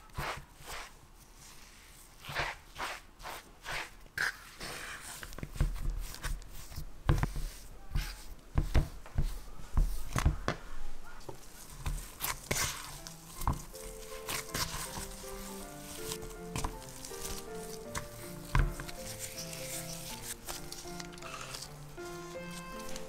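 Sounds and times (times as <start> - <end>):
hand kneading dough: 0.0 - 23.0
utensils scraping a wooden bowl: 11.8 - 23.0.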